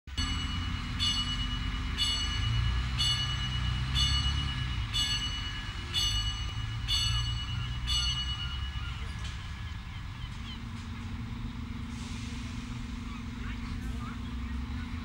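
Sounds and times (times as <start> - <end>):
bell striking: 0.1 - 9.5
diesel engine rumbling: 0.1 - 15.0.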